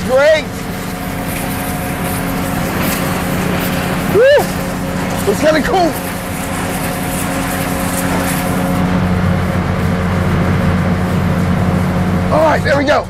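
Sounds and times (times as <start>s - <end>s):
water spray hissing: 0.0s - 9.1s
pump and engine hum: 0.0s - 13.0s.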